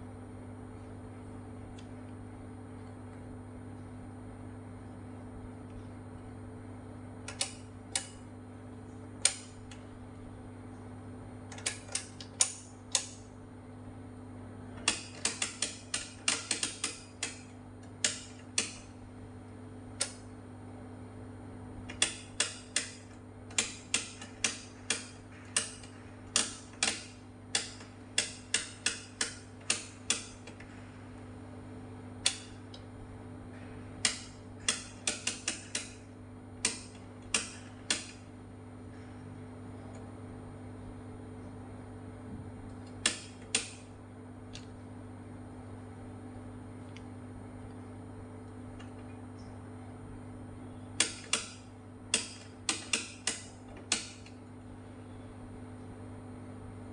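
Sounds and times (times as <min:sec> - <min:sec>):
steady low hum: 0:00.0 - 0:56.9
rotary switch clicks: 0:07.2 - 0:08.2, 0:09.2 - 0:09.9, 0:11.5 - 0:13.3, 0:14.8 - 0:19.0, 0:19.9 - 0:20.3, 0:21.8 - 0:30.9, 0:32.2 - 0:32.9, 0:33.6 - 0:38.3, 0:42.7 - 0:44.8, 0:51.0 - 0:54.5.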